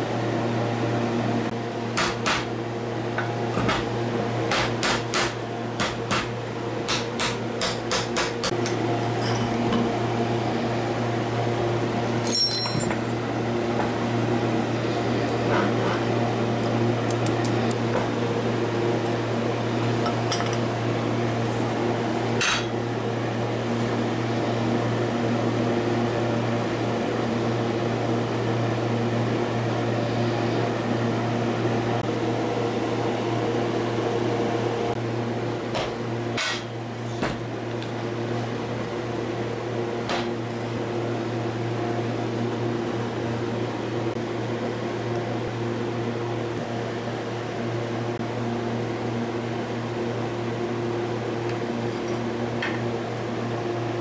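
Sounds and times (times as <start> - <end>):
ringing metallic clink: 12.2 - 13.0.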